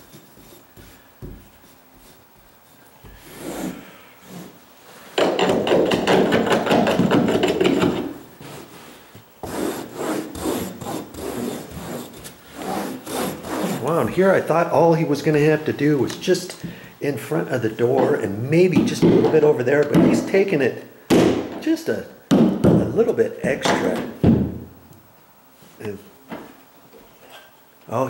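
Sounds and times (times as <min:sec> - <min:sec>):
carpet tool scraping carpet: 0:00.0 - 0:05.1, 0:06.6 - 0:14.2.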